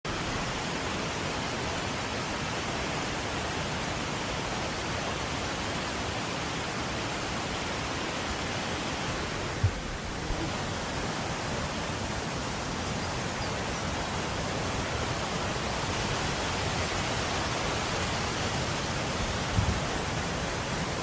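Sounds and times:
waterfall rushing: 0:00.1 - 0:21.0.

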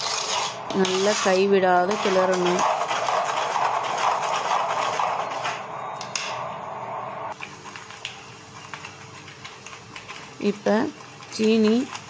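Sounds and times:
metal ladle scraping pot: 0:00.0 - 0:05.7.

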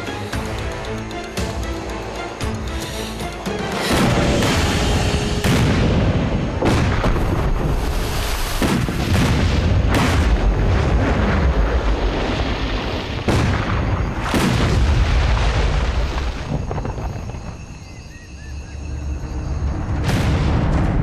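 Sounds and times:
explosions: 0:03.8 - 0:17.5, 0:19.8 - 0:21.0
deep rumble: 0:18.8 - 0:21.0.

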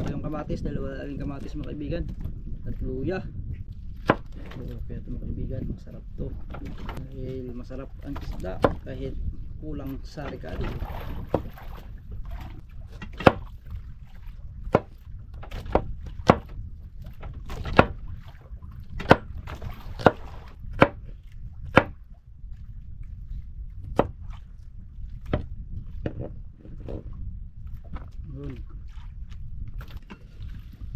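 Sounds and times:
steady low rumble: 0:00.0 - 0:30.9
knife chopping on wooden board: 0:04.0 - 0:04.4, 0:14.7 - 0:14.9, 0:15.6 - 0:16.5, 0:19.0 - 0:19.3, 0:20.8 - 0:21.0, 0:21.7 - 0:22.0, 0:24.0 - 0:24.2.

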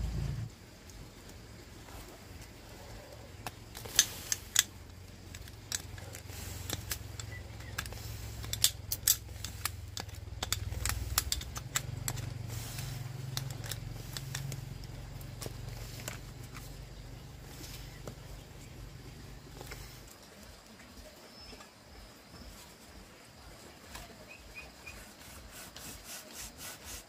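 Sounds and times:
low steady hum: 0:00.0 - 0:27.0
metallic clicks of tools: 0:03.4 - 0:16.7.

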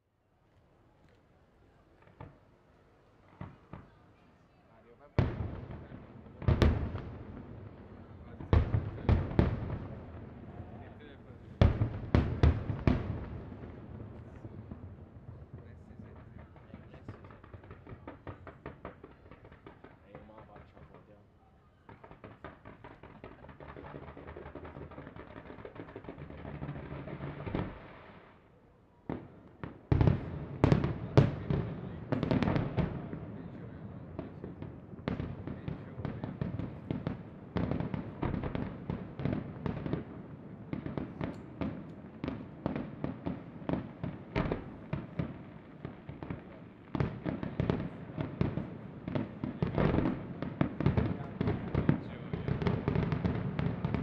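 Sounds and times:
firework shell bursts and crackling: 0:15.6 - 0:21.2, 0:21.8 - 0:28.3.

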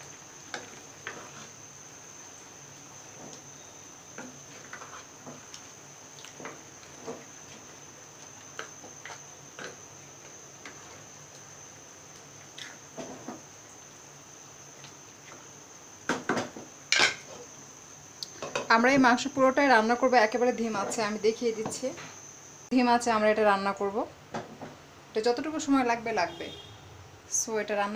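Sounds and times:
spatula stirring in metal pan: 0:00.4 - 0:11.5.

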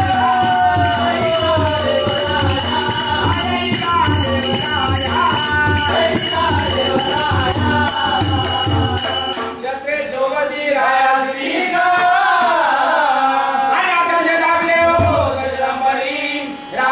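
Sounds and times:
steady drum beat: 0:00.0 - 0:09.6
jingling percussion: 0:00.0 - 0:09.8.

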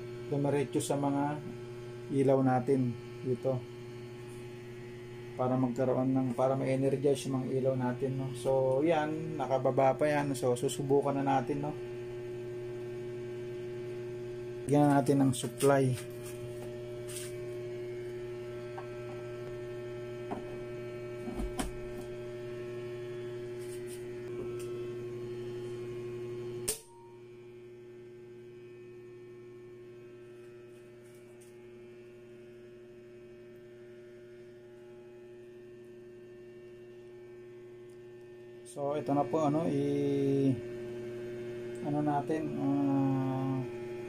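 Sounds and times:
electrical mains hum: 0:00.0 - 0:44.0
sharp switch click: 0:26.6 - 0:27.1.

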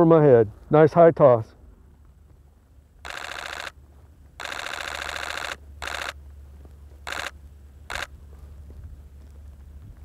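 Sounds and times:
camera shutter burst: 0:03.0 - 0:03.8, 0:04.4 - 0:06.2, 0:07.0 - 0:08.1.

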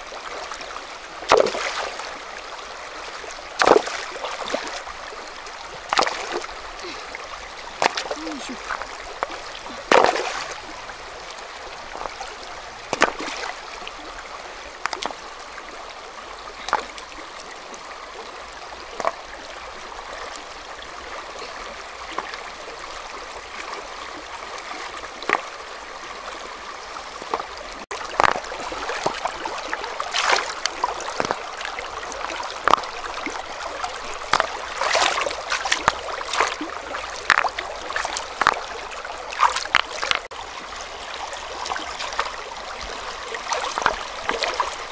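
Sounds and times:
river flowing over rocks: 0:00.0 - 0:44.9
water splashes: 0:00.0 - 0:44.9
river stones knocking together: 0:01.3 - 0:01.8, 0:03.6 - 0:04.7, 0:07.8 - 0:10.5, 0:12.9 - 0:13.3, 0:16.6 - 0:17.0, 0:19.0 - 0:19.2, 0:28.1 - 0:29.2, 0:30.1 - 0:31.4, 0:32.6 - 0:33.0, 0:34.2 - 0:38.8, 0:39.4 - 0:40.3, 0:43.7 - 0:44.7.

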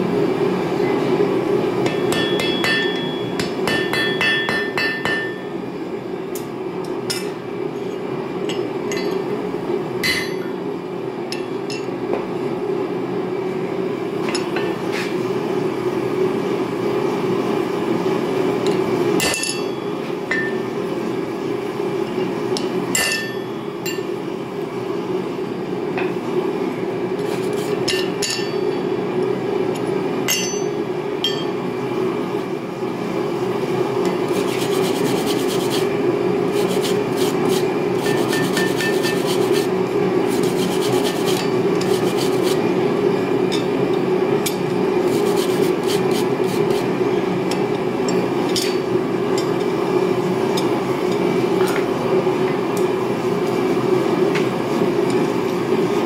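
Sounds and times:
hammer striking steel on anvil: 0:01.8 - 0:05.5, 0:10.0 - 0:10.5, 0:19.2 - 0:20.6, 0:23.0 - 0:24.0, 0:27.9 - 0:28.7, 0:30.3 - 0:31.6
forge burning: 0:32.7 - 0:47.4.

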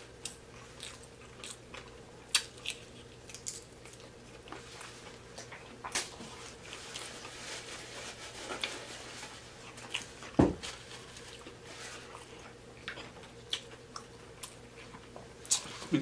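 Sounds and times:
chewing with wet smacks: 0:00.2 - 0:04.7, 0:12.1 - 0:15.9.

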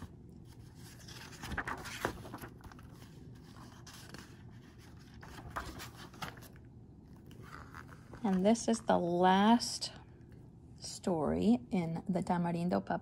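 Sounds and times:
book pages turning: 0:00.0 - 0:09.1.

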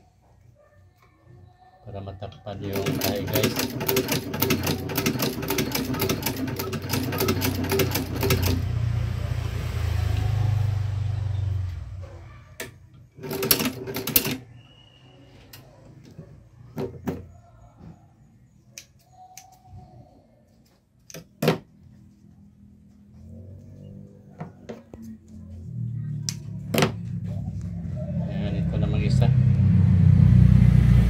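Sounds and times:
sewing machine stitching: 0:02.6 - 0:08.7, 0:12.6 - 0:14.5.

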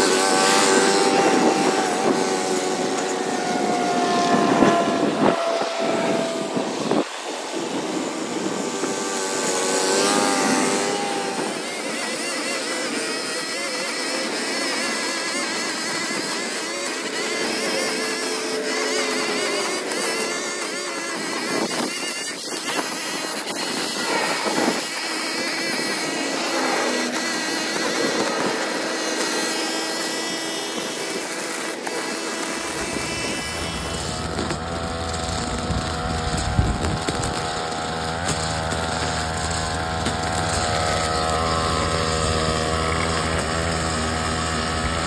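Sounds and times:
small gas engine running: 0:00.0 - 0:45.0
deep engine hum: 0:32.6 - 0:45.0.

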